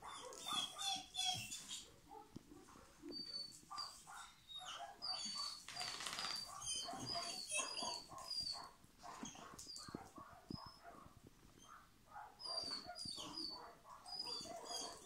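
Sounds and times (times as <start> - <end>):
dog whining and yipping: 0.0 - 15.0
high chirping squeaks: 0.4 - 1.9, 3.2 - 10.0, 12.4 - 15.0.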